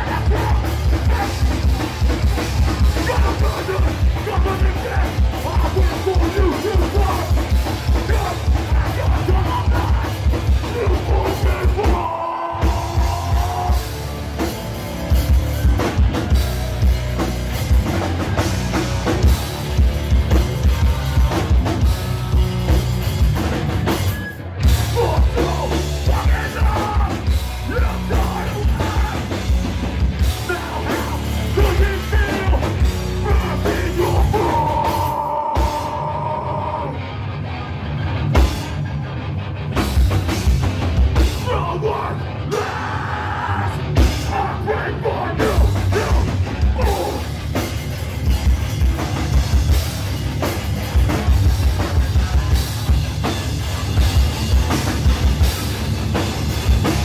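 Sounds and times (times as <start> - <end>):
shouted vocals: 0.0 - 14.0, 20.4 - 22.8, 24.6 - 29.6, 30.2 - 37.0, 41.2 - 47.3
fast drum kit: 0.0 - 36.4, 38.3 - 38.9, 39.6 - 57.0
distorted electric guitars: 0.0 - 57.0.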